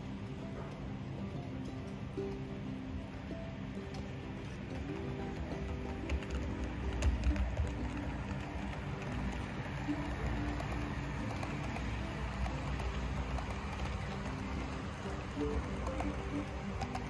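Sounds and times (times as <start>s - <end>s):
background music: 0.0s - 17.0s
model train wheels rumbling: 3.6s - 17.0s.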